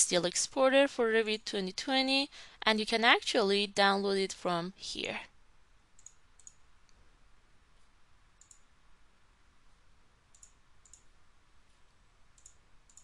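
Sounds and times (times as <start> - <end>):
low steady hiss: 0.0 - 13.0
computer mouse clicks: 6.0 - 7.0, 7.8 - 8.7, 10.3 - 11.1, 11.7 - 13.0.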